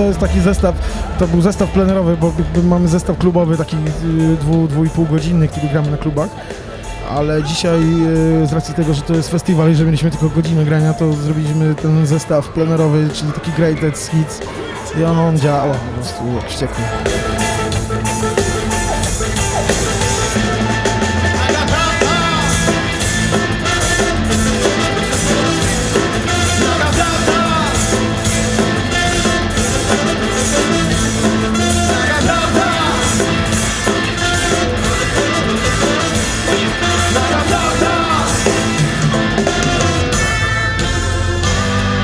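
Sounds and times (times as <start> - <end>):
live reggae band playing: 0.0 - 12.6, 16.7 - 42.0
saxophone and trumpet horns: 16.7 - 42.0
person singing: 18.4 - 40.4.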